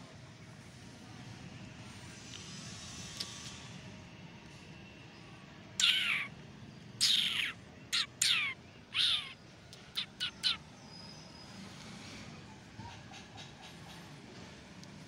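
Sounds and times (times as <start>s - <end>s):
high-pitched animal calls: 5.8s - 6.3s, 7.0s - 10.6s.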